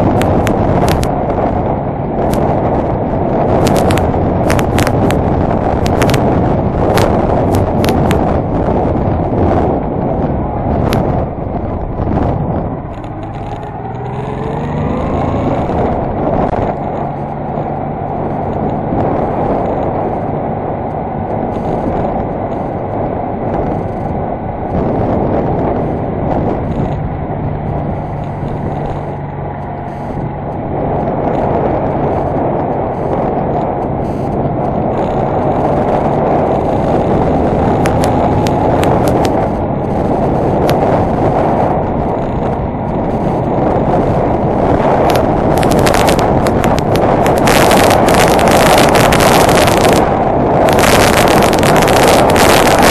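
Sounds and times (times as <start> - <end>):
motorcycle engine running: 0.0 - 52.9
wind and road noise: 0.0 - 52.9
sharp clicks: 0.1 - 1.1, 3.6 - 5.2, 5.8 - 6.2, 12.9 - 15.8, 37.8 - 39.4, 45.0 - 50.1.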